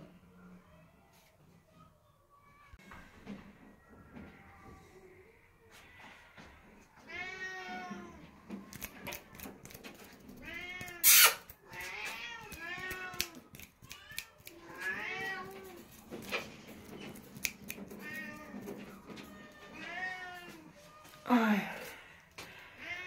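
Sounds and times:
cat meowing: 10.4 - 15.8, 17.9 - 20.7.

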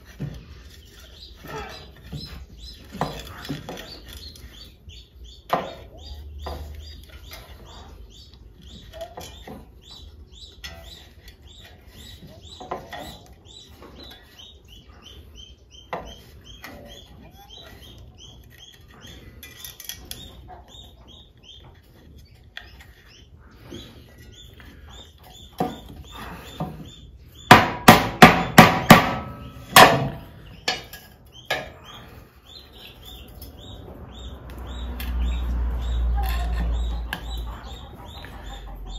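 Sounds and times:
small birds chirping: 0.0 - 38.9
hammer striking wood: 27.5 - 30.2.

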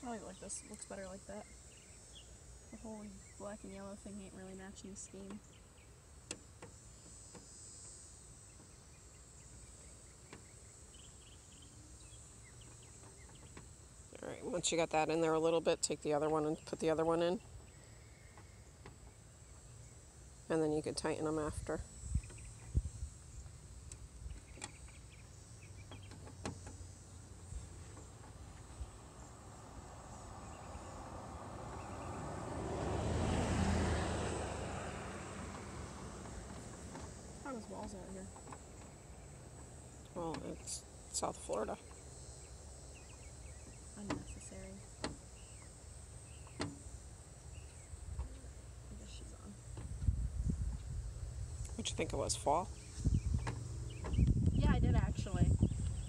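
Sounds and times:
vehicle passing by: 28.3 - 38.4.

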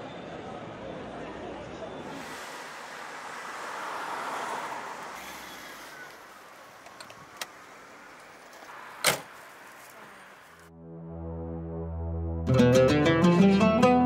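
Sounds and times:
street background noise: 0.0 - 10.7.

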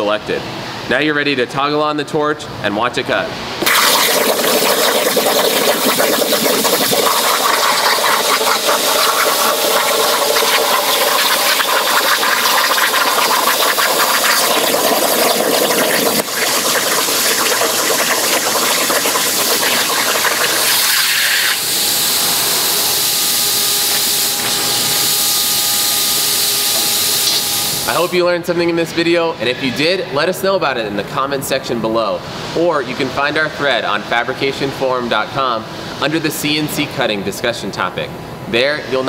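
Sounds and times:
plasma torch hissing: 3.6 - 28.2.

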